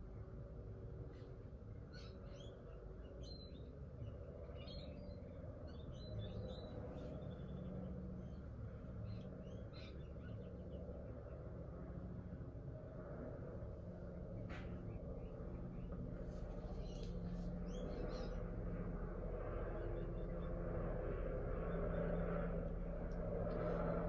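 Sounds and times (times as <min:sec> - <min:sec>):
low background hum: 0:00.0 - 0:24.0
faint bird chirps: 0:01.1 - 0:11.4.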